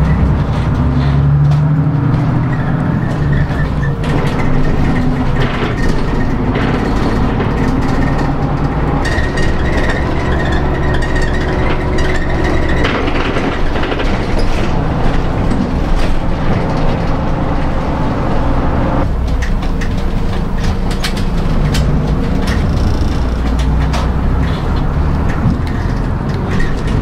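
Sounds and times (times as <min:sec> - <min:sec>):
bus engine rumble: 0:00.0 - 0:27.0
road noise: 0:00.0 - 0:27.0
light clicks and rattles: 0:19.0 - 0:27.0.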